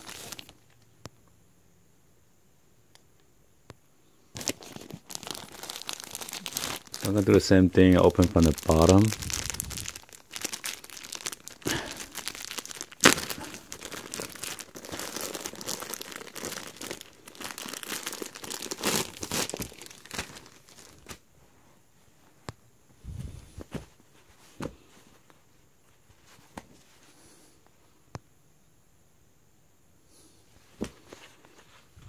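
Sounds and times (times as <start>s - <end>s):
plastic bag crinkling: 0.0s - 0.7s, 4.4s - 21.2s.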